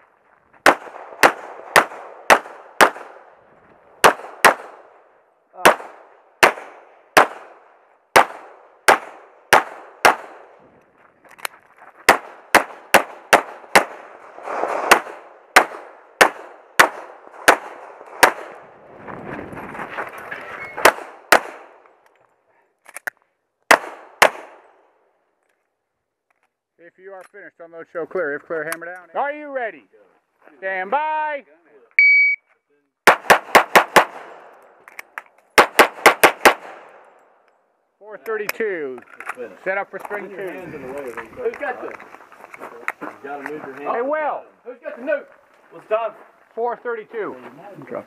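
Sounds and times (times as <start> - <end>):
pistol shots: 0.6 - 3.3, 4.0 - 5.0, 5.6 - 10.6, 12.1 - 14.2, 14.8 - 18.6, 20.8 - 21.8, 23.7 - 24.8, 33.0 - 34.6, 35.6 - 37.0.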